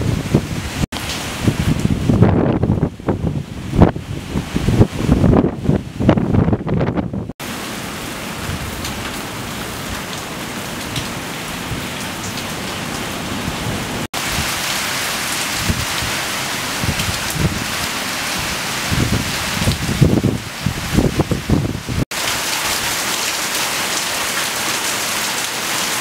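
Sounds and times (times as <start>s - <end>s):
wind buffeting microphone: 0.0s - 7.4s, 15.5s - 16.2s, 16.8s - 22.0s
heavy rain hissing: 12.5s - 26.0s.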